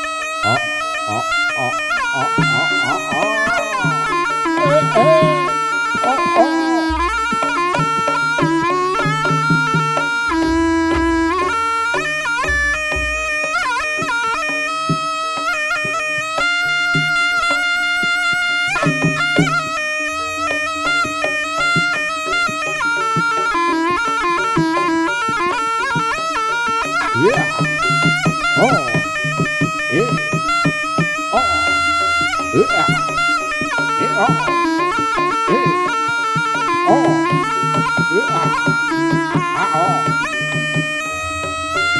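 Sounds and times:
nasal shawm melody: 0.0s - 41.9s
low drum beats: 6.2s - 8.7s, 10.3s - 11.8s, 12.4s - 13.5s.

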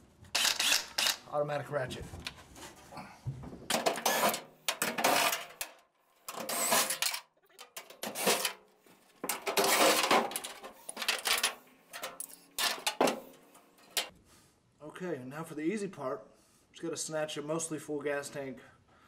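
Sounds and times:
metal tools clinking and rattling: 3.7s - 8.6s, 9.2s - 14.1s.

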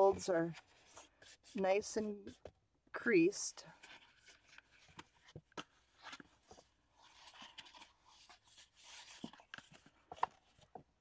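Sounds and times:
card rubbing and rustling: 0.3s - 1.6s, 3.8s - 10.8s.

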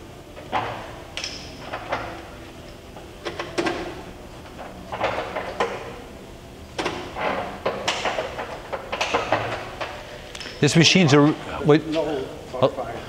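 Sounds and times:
milling machine clunks and clicks: 6.8s - 10.0s.

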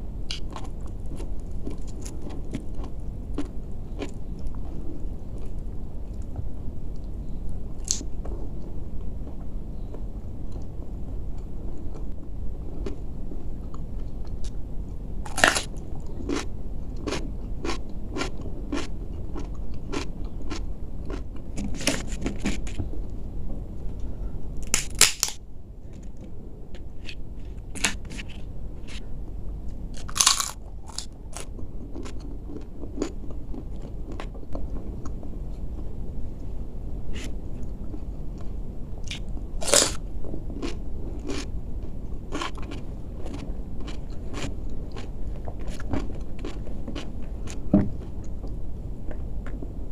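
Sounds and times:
person chewing crisp food: 0.3s - 4.8s, 15.3s - 22.8s, 24.6s - 25.4s, 27.0s - 29.0s, 30.0s - 35.2s, 39.0s - 41.5s, 42.3s - 48.4s.

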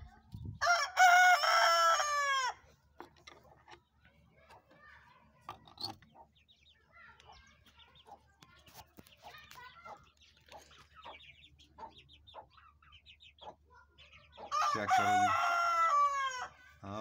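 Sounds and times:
rooster crowing: 0.6s - 2.6s, 14.6s - 16.5s
hen clucking: 5.4s - 6.6s, 7.2s - 16.5s.

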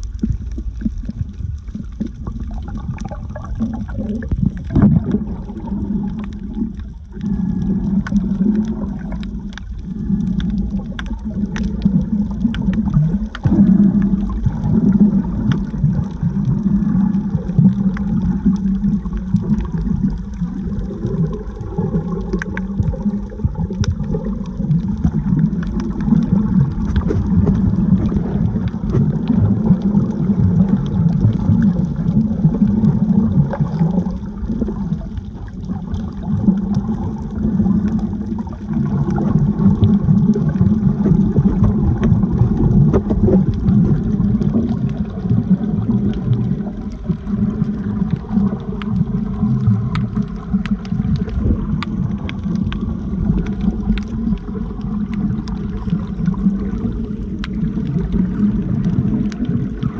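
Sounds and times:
faint clicks: 0.0s - 16.2s, 17.2s - 29.4s, 46.0s - 59.9s
underwater sloshing and gurgling: 0.0s - 59.9s.

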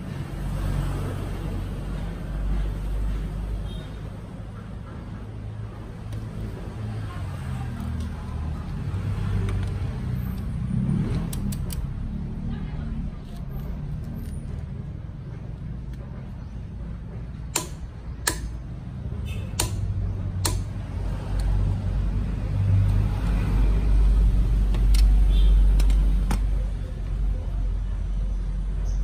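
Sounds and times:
torque wrench clicking: 17.5s - 18.5s.

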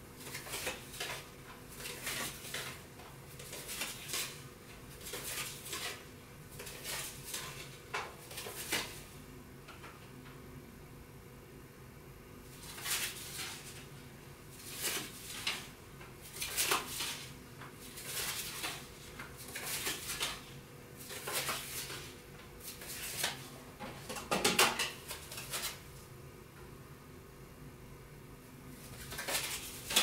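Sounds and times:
playing cards rustling and clicking: 0.2s - 6.0s, 6.6s - 9.1s, 14.6s - 23.5s, 24.8s - 25.8s, 28.8s - 30.0s.

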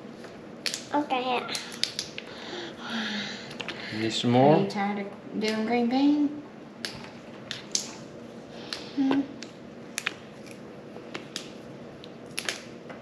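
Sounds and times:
green beans snapping: 12.3s - 12.7s.

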